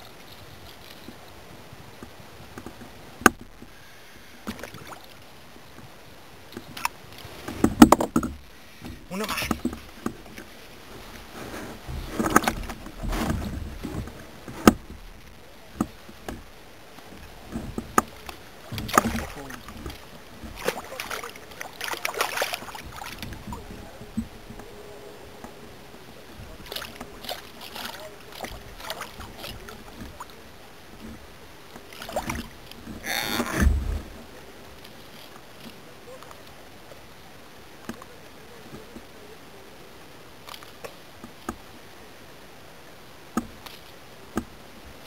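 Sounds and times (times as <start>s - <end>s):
water splashing: 0.0s - 39.3s
gear bumping kayak hull: 1.9s - 3.8s, 6.5s - 36.2s.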